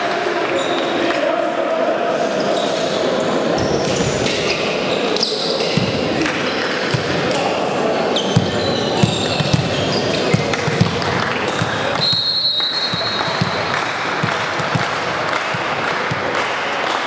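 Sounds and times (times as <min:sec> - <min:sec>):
crowd chatter echoing: 0:00.0 - 0:17.0
ball bouncing on court: 0:05.6 - 0:07.5, 0:08.3 - 0:16.5
referee whistle blast: 0:12.0 - 0:13.2.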